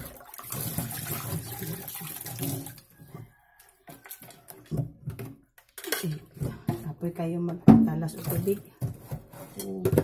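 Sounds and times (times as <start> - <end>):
water running into pot: 0.0 - 3.0.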